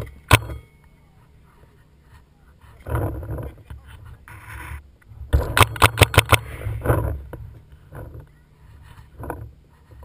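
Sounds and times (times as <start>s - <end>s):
paintball marker firing: 5.4s - 6.6s.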